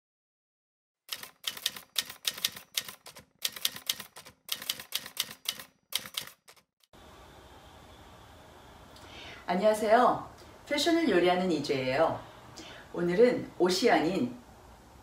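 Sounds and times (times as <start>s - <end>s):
typewriter keys striking: 1.1s - 6.7s
faint room hiss: 7.0s - 15.0s.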